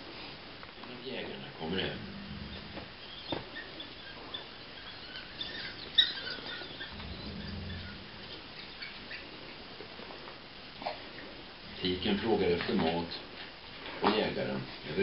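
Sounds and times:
high chirps and squeaks: 0:02.5 - 0:09.6.

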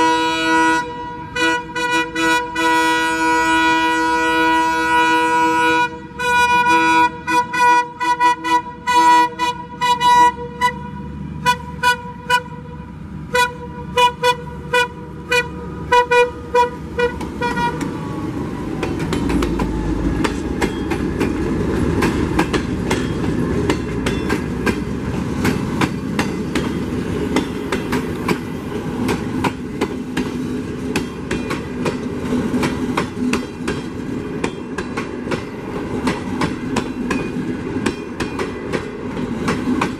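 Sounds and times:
locomotive horn blasts and toots: 0:00.0 - 0:18.0
train rolling noise: 0:00.0 - 0:39.9
wheels clacking over rail joints: 0:15.4 - 0:39.9.

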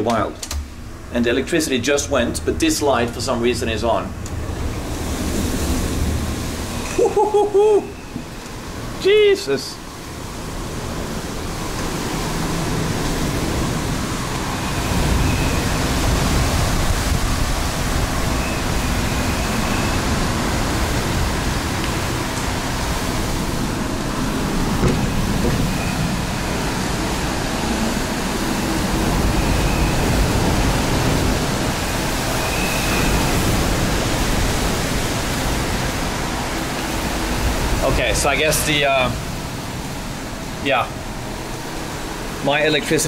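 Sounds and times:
driving rain: 0:00.0 - 0:43.0
hurricane wind gusting: 0:00.0 - 0:43.0.

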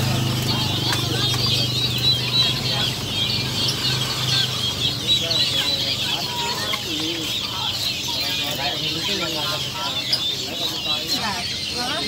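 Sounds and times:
chicken clucking: 0:00.0 - 0:12.0
small birds chirping: 0:00.0 - 0:12.0.

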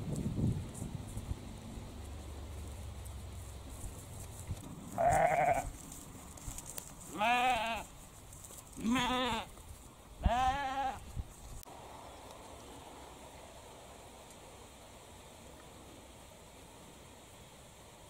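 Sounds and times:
sheep bleating: 0:04.9 - 0:05.7, 0:07.1 - 0:07.9, 0:08.8 - 0:09.5, 0:10.2 - 0:11.0.

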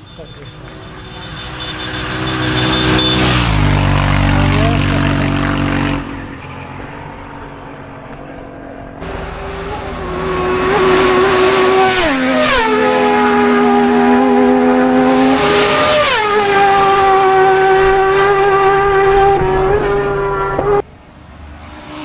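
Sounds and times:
racing motorcycle at high revs: 0:09.0 - 0:20.8.

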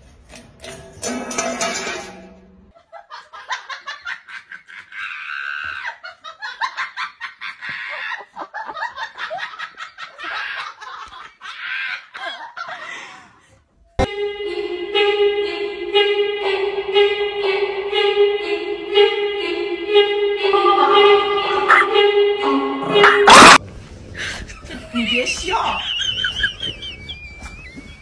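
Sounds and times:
music: 0:14.0 - 0:23.6.

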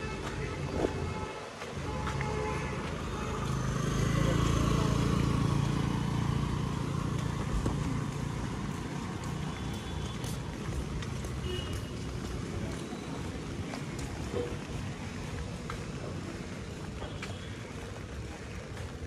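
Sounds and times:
vehicle engine passing: 0:03.5 - 0:09.4.

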